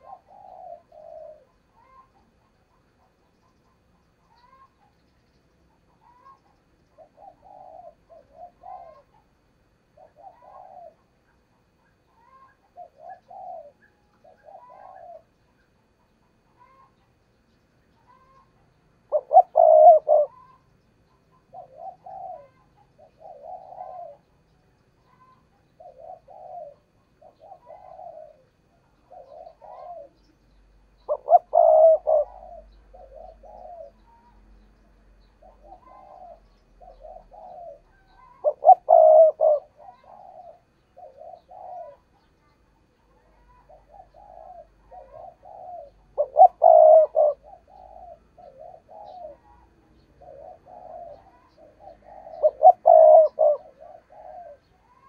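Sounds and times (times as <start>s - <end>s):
dove cooing: 0.0s - 55.0s.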